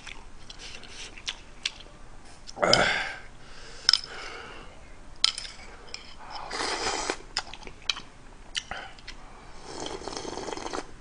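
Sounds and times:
metal chopsticks clicking on dishes: 5.2s - 6.5s
breathy mouth sound: 8.6s - 10.9s.

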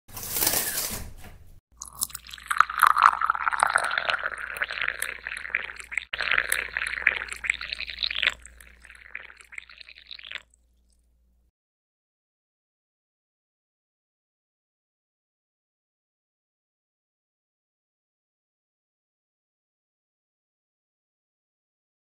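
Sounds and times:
coffee pouring into mug: 1.8s - 10.5s.

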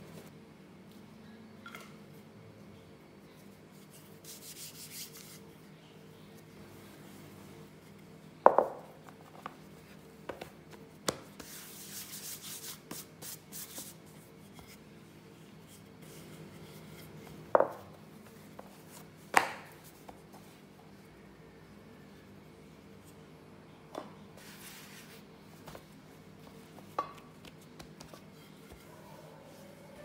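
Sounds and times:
rolling pin rubbing on dough: 11.4s - 14.8s.

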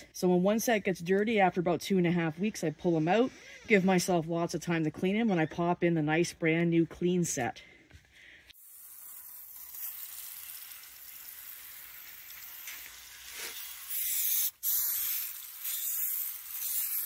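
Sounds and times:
aerosol spray hissing: 8.6s - 17.0s.

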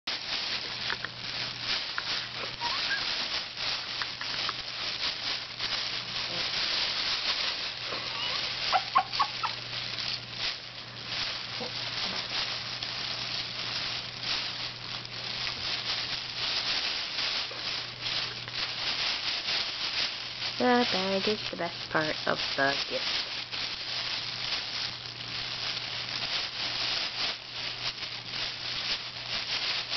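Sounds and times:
plastic bag crinkling and rustling: 0.1s - 29.9s
baby squealing: 2.5s - 3.0s, 8.1s - 9.6s.

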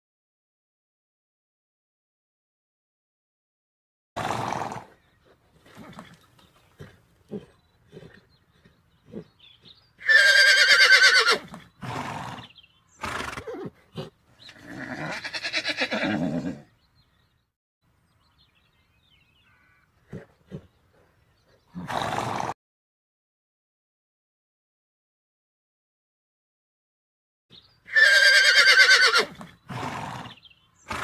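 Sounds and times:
horse whinnying: 4.2s - 5.0s, 10.0s - 16.7s, 21.7s - 22.6s, 27.9s - 31.0s
horse snorting: 4.2s - 16.7s, 20.0s - 22.6s, 28.0s - 31.0s.

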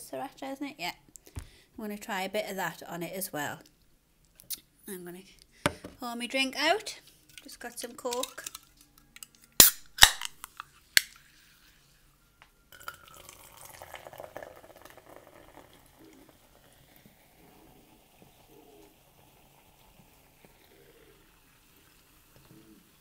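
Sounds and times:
soda pouring into a glass: 12.7s - 23.0s.

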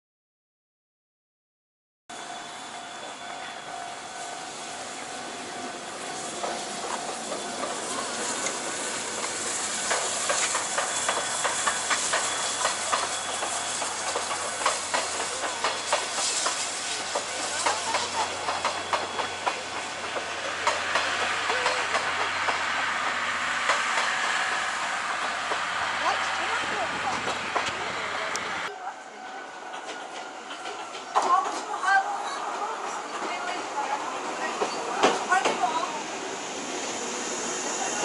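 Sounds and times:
steam locomotive hissing: 2.1s - 38.0s
train wheels clicking over rail joints: 5.4s - 28.5s, 29.7s - 36.0s.

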